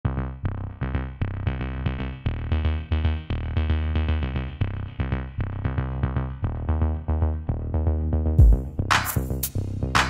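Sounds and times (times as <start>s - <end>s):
heavy bass line: 0.0s - 10.0s
drum-machine beat: 8.4s - 10.0s.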